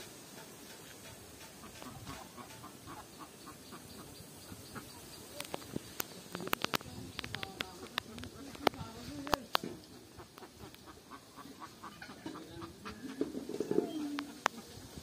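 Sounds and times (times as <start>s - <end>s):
chickens clucking: 0.0s - 15.0s
sharp clicks: 5.3s - 9.6s.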